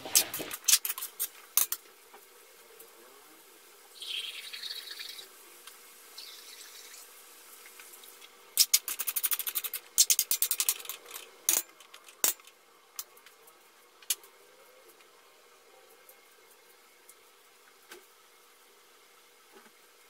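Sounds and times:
food sizzling: 0.0s - 14.4s.

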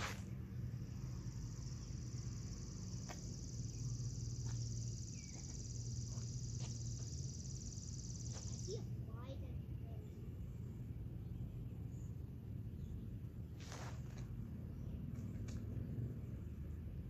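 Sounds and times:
high-pitched insect trill: 0.0s - 9.0s
low steady hum: 0.0s - 17.0s.

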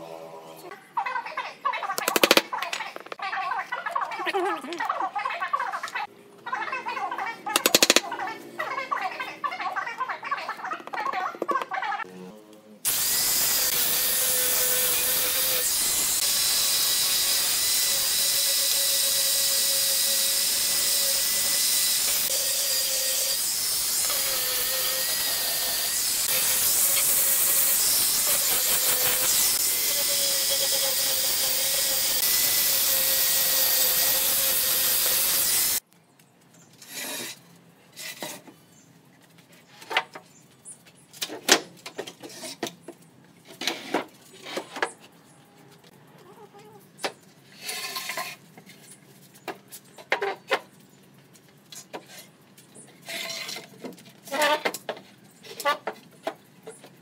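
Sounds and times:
angle grinder cutting wood: 2.0s - 2.4s, 7.6s - 8.0s, 12.2s - 35.8s.

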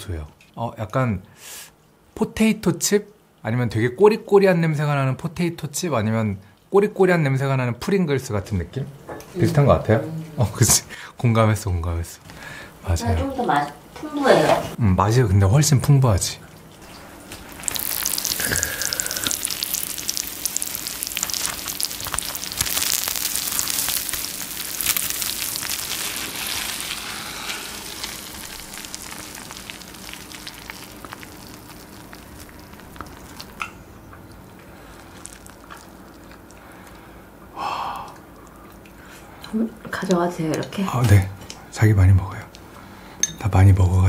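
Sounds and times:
melted cheese sizzling: 15.6s - 37.4s.

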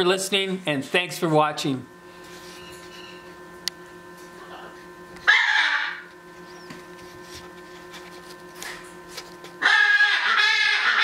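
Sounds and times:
steady low hum: 0.0s - 11.0s
parrot squawk: 5.2s - 6.0s, 9.6s - 11.0s.

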